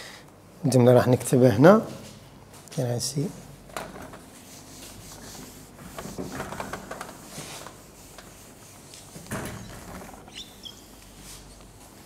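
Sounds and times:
eraser wiping whiteboard: 4.3 - 11.6
brief squeak: 10.3 - 10.9.

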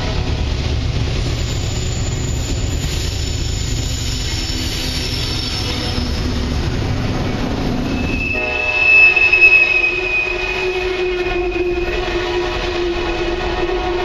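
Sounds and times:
hopper cars rolling rumble: 0.0 - 14.0
train wheels squealing: 1.3 - 6.6, 7.8 - 11.9.

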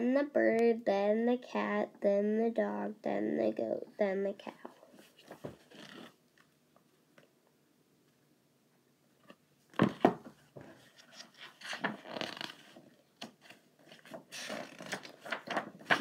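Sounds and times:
book pages rustling: 4.6 - 6.5, 9.8 - 16.0.

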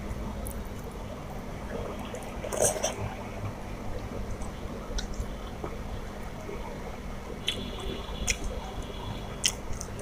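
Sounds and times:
wet chewing: 9.4 - 10.0.

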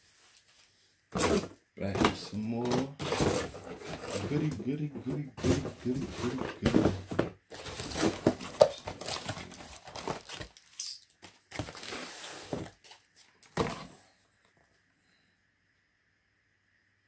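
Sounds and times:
items knocking inside box: 1.2 - 4.6, 5.4 - 10.5
cardboard box crinkling: 5.4 - 13.9.

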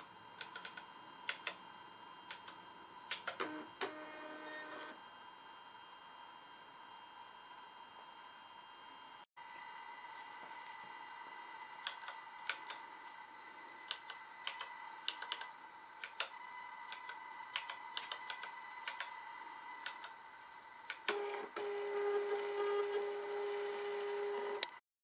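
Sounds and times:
label printer motor whine: 0.0 - 5.9, 9.4 - 24.8
keypad keys clicking: 13.9 - 19.1.

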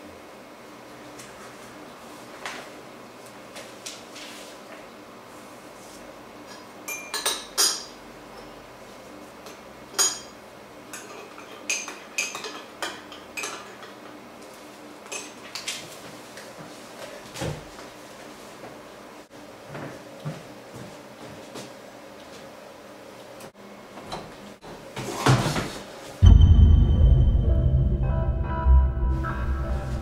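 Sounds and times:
low thump: 26.2 - 29.2.

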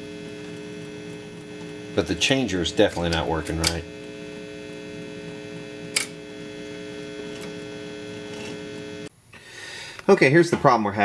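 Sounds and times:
record player electrical hum: 0.0 - 11.0.

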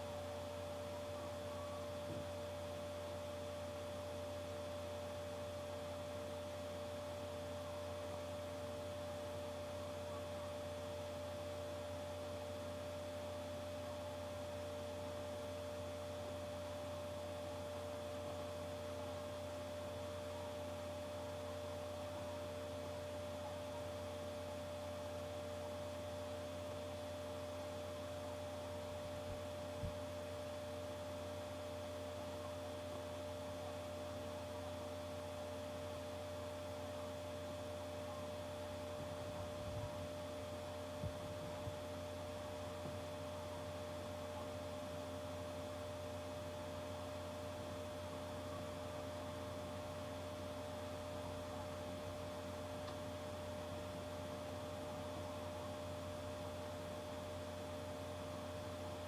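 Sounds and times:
electrical hum: 0.0 - 59.0.

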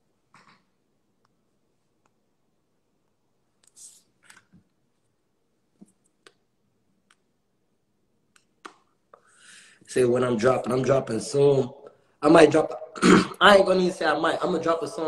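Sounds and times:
soft hisses: 3.6 - 4.4.

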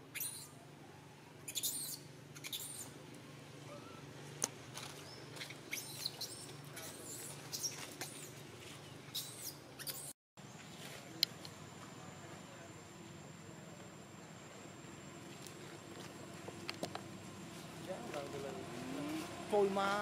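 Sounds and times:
high-pitched animal squeaks: 0.1 - 0.6, 1.5 - 2.9, 5.4 - 8.3, 9.1 - 10.1.

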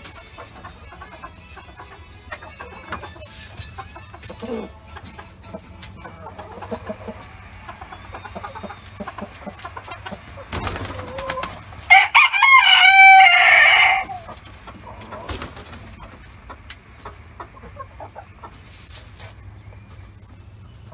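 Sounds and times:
chickens clucking: 0.0 - 20.9
rooster crowing: 11.2 - 14.3.

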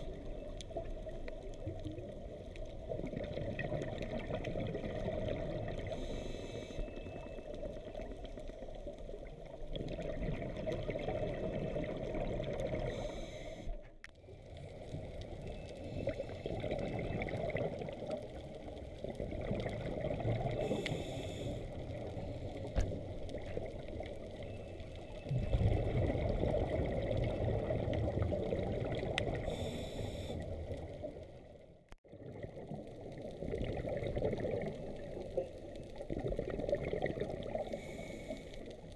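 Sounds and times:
underwater water noise: 0.0 - 38.9
exhaled bubbles rushing: 1.7 - 6.0, 9.5 - 13.0, 16.0 - 20.8, 25.3 - 29.5, 32.0 - 37.6
diver breathing through regulator: 5.9 - 6.9, 12.9 - 13.8, 20.6 - 21.8, 29.4 - 30.5, 37.5 - 38.7.

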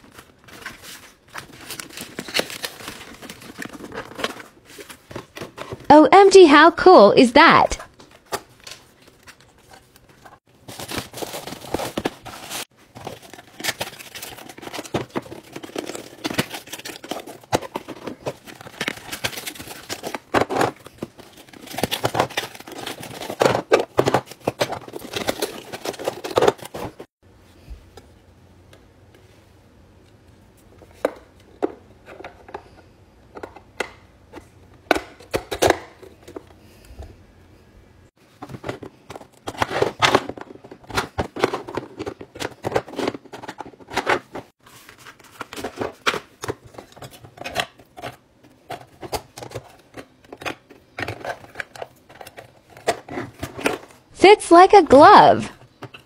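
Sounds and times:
packaging rustling and crinkling: 0.0 - 5.9, 8.0 - 27.1.

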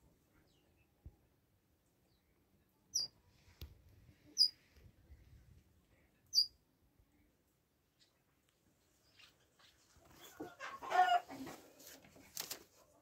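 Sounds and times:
parrot chirping: 6.3 - 6.5.

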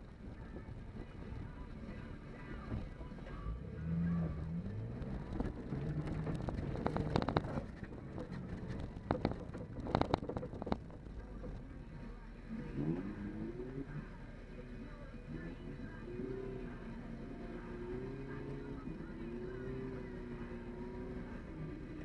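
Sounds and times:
engine revving: 3.3 - 10.3, 12.4 - 22.0
body and suspension knocks and rattles: 4.9 - 11.6.

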